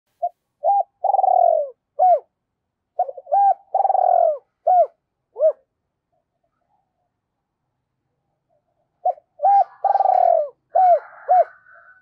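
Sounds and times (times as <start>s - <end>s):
spotted dove cooing: 0.2s - 2.3s, 2.9s - 5.7s, 9.0s - 12.0s.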